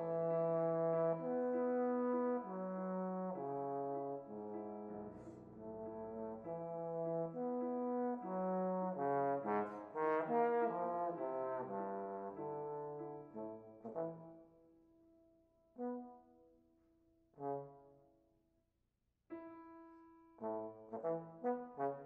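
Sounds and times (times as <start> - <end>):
bass trombone playing: 0.0 - 14.3
piano accompaniment: 0.0 - 16.5, 19.3 - 22.0.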